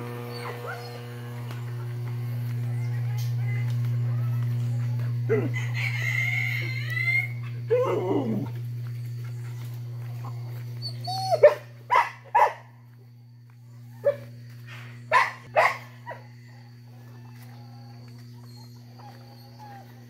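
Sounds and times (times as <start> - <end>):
steady low hum: 0.0 - 20.0
dog barking: 0.1 - 1.3, 5.2 - 5.6, 11.3 - 12.8, 14.0 - 14.3, 15.1 - 16.3.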